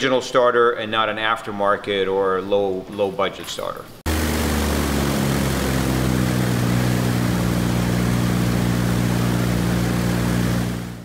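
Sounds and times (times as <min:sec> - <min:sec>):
light aircraft engine running: 0:04.1 - 0:11.0.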